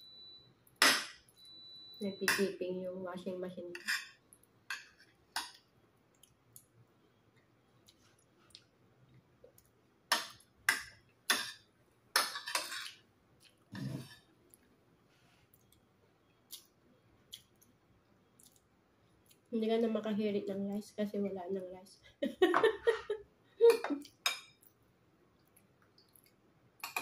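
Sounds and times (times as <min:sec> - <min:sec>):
cutlery clinking on a plate: 0:12.2 - 0:13.0.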